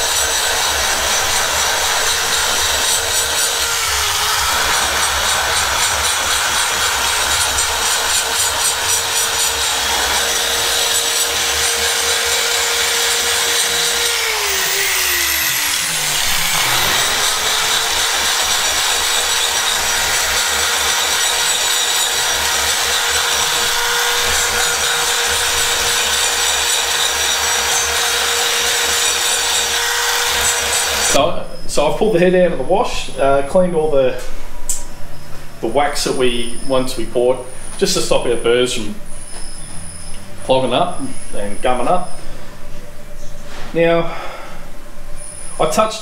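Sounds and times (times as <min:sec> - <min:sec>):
burr rasping metal: 0:00.0 - 0:31.2
die grinder whine: 0:00.0 - 0:31.2.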